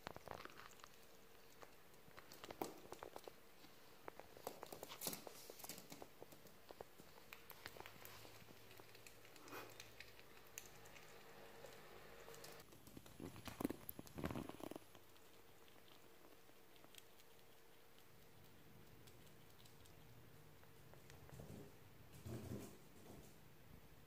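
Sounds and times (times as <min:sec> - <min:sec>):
small animal chewing: 0:00.0 - 0:22.1.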